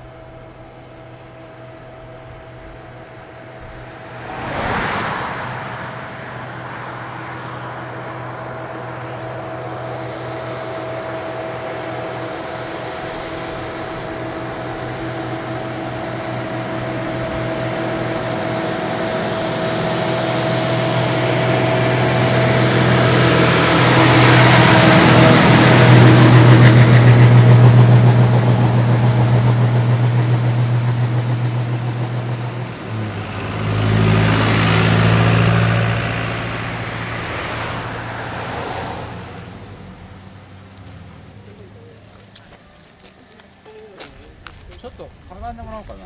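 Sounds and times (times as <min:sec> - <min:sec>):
bus diesel engine running: 0:00.0 - 0:46.0.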